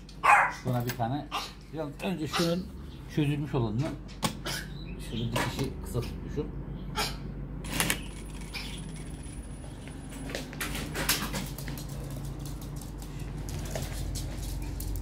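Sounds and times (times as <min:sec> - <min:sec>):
dog claws pattering on hard floor: 0:10.3 - 0:15.0.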